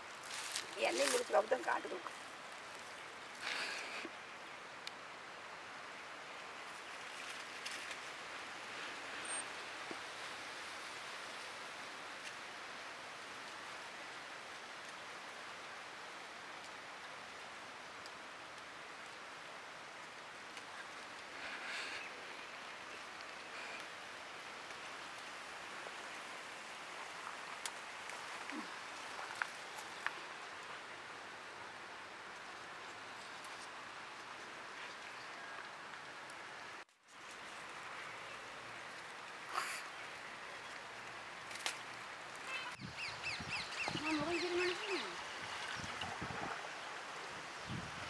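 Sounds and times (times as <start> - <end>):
leaves and stems rustling: 0.0 - 4.0, 6.6 - 10.4, 19.9 - 31.6, 32.2 - 42.8
steady outdoor hiss: 0.0 - 48.0
leaves rustling and snapping: 0.2 - 3.0, 41.0 - 42.1.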